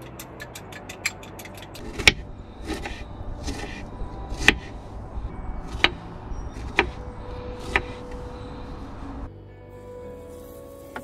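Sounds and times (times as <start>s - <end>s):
knife slicing strawberries: 1.8s - 4.8s, 7.6s - 8.1s.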